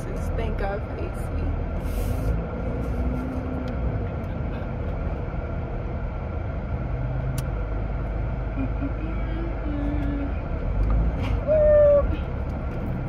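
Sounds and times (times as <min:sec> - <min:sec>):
engine and road rumble: 0:00.0 - 0:13.0
air conditioning hiss: 0:01.7 - 0:03.5.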